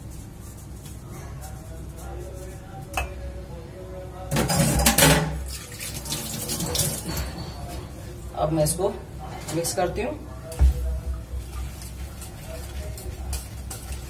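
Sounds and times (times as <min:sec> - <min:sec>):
kitchen tap running: 0:04.7 - 0:07.3.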